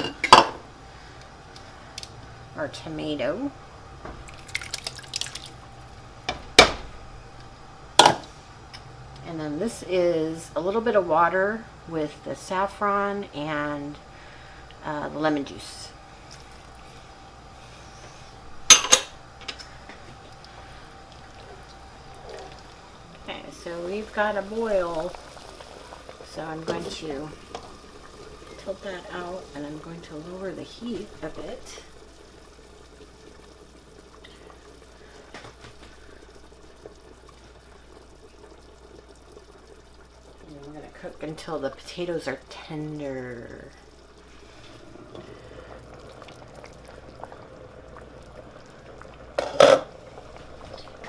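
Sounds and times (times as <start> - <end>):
soup bubbling in a pot: 0.0 - 51.0
glass bowl clinking: 18.7 - 19.1.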